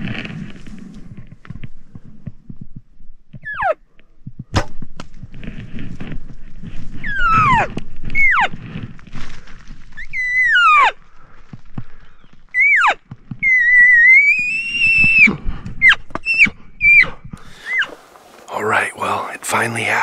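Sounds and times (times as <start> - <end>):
elk bugling: 12.0 - 18.8.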